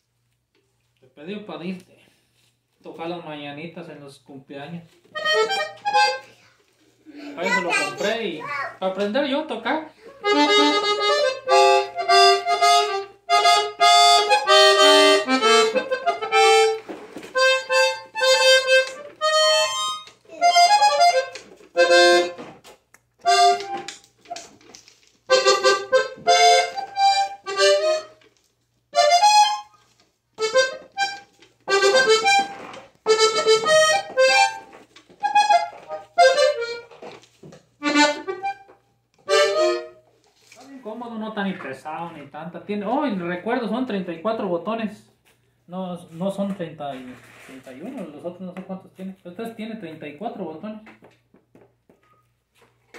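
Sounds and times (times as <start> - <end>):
button accordion notes and chords: 5.2 - 6.3, 10.2 - 22.5, 23.2 - 24.0, 25.3 - 28.2, 29.0 - 29.7, 30.4 - 36.9, 37.8 - 40.0.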